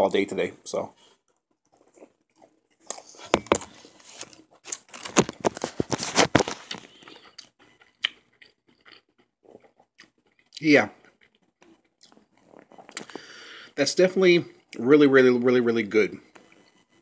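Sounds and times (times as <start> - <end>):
foil wrapper crinkling: 3.0 - 7.1.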